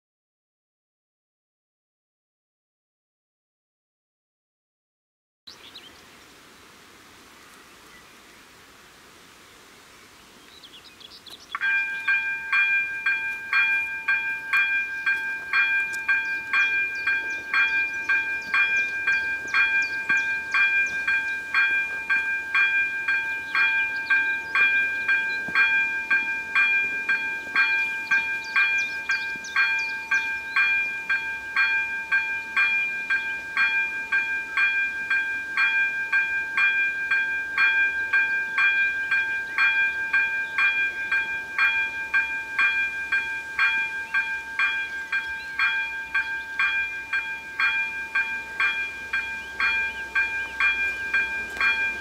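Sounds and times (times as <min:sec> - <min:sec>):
level crossing bell ringing: 0:11.6 - 0:52.0.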